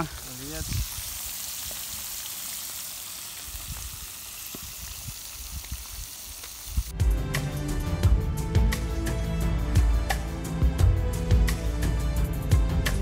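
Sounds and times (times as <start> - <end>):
fish sizzling in hot oil: 0.0 - 6.9
background music with plucked notes: 6.9 - 13.0.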